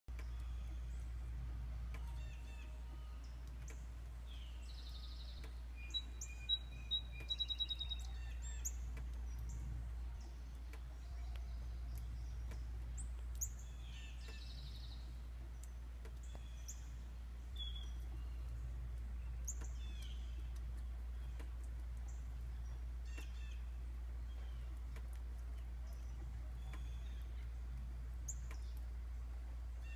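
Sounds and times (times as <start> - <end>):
low hum: 0.1 - 29.9
songbirds chirping: 0.1 - 29.9
whistled bird notes: 4.5 - 8.8.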